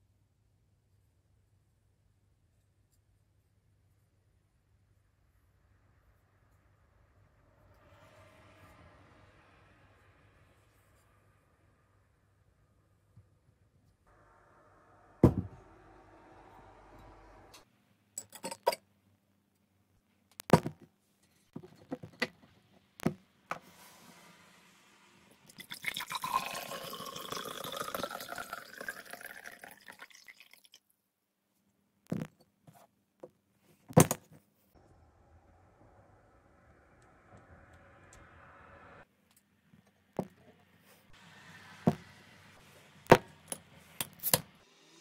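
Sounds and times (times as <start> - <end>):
liquid pouring into a glass: 25.5 - 30.8.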